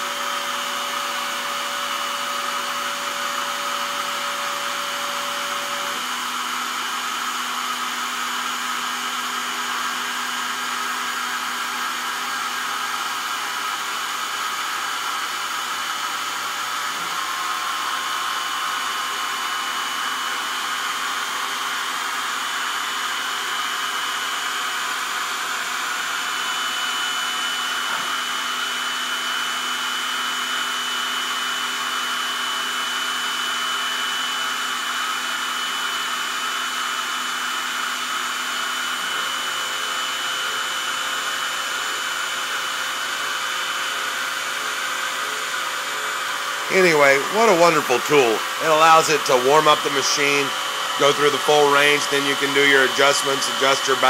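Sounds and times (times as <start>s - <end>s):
mill motor whirring: 0.0s - 54.0s
whining stepper drive tones: 46.6s - 54.0s.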